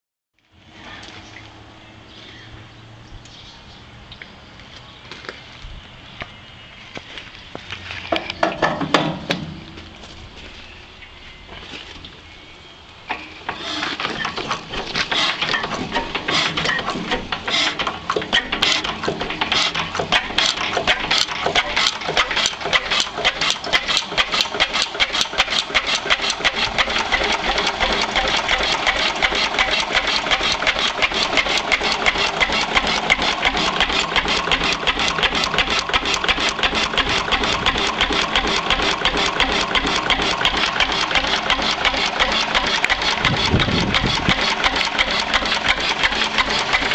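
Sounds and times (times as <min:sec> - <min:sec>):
stationary engine firing: 0:14.6 - 0:46.9.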